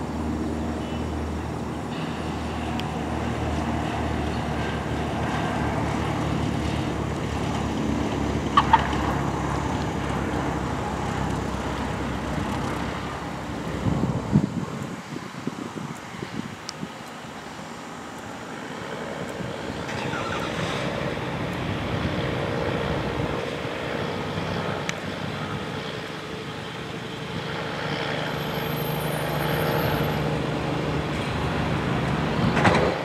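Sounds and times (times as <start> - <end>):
propeller plane engine droning: 0.0 - 33.0.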